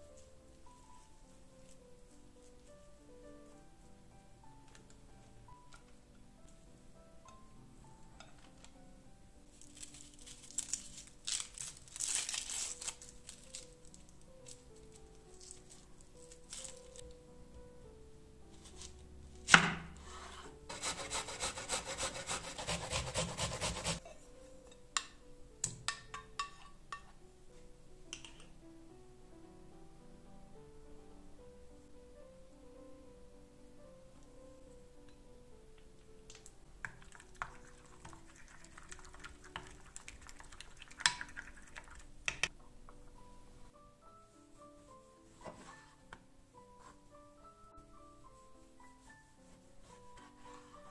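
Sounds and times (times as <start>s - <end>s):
onion grating on metal grater: 20.1s - 24.0s
spoon stirring sauce: 36.9s - 42.4s.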